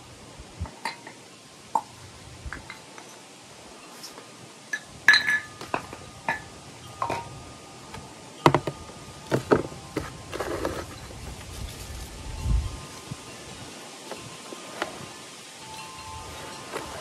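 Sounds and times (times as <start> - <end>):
scraping rustle: 9.2 - 17.0.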